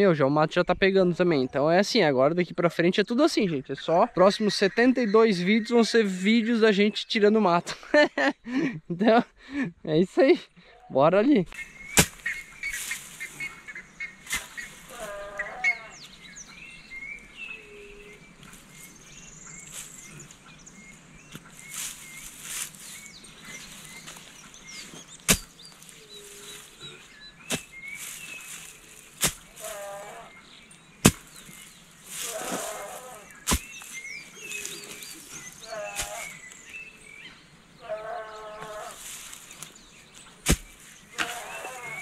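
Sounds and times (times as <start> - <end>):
birds chirping: 0.0 - 42.0
rustling: 11.5 - 16.2, 18.2 - 20.4, 21.2 - 37.0, 38.1 - 42.0
goat bleating: 14.8 - 16.0, 29.5 - 30.4, 32.2 - 33.4, 35.6 - 36.3, 37.8 - 39.0, 41.2 - 42.0.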